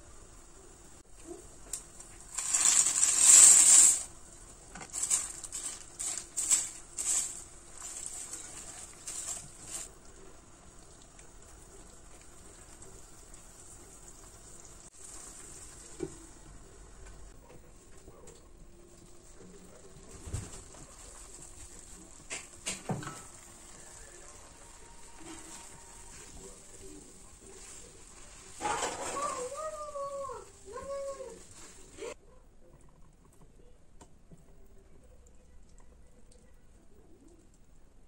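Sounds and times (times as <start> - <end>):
faint simmer: 0.0 - 38.0
dry pasta rattling into pot: 2.2 - 4.1, 4.7 - 9.9.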